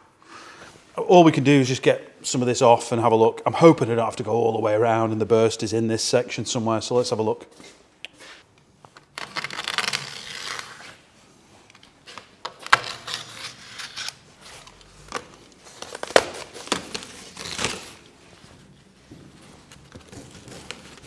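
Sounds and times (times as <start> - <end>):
foil crinkling and tearing: 9.1 - 11.0.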